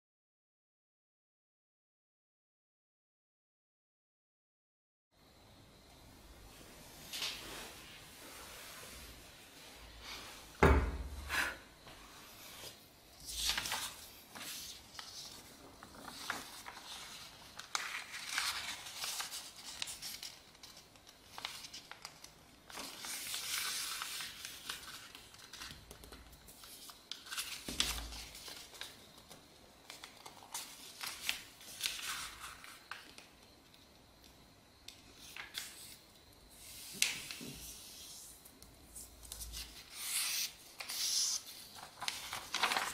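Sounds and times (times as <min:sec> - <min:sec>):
loud thump: 0:10.6 - 0:11.2
paper rustling and crinkling: 0:12.6 - 0:33.4, 0:35.1 - 0:36.0, 0:38.9 - 0:42.9.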